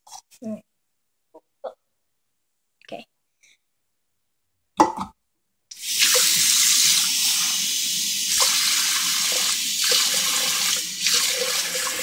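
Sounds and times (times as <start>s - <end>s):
water running from tap into cup: 5.7s - 12.0s.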